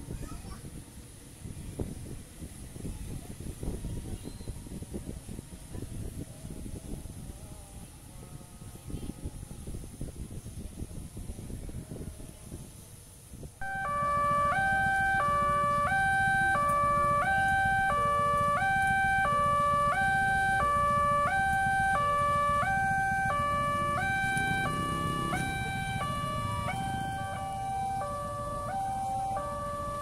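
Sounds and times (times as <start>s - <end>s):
two-tone crossing alarm: 13.6s - 30.0s.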